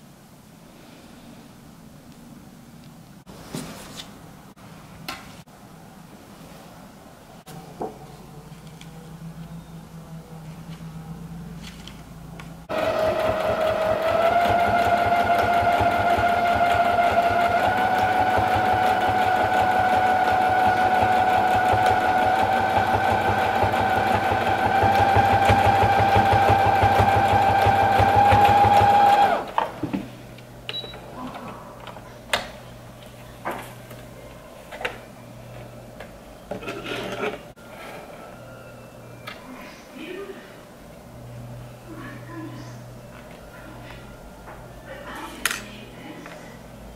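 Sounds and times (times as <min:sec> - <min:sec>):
sewing machine stitching: 0:12.7 - 0:29.6.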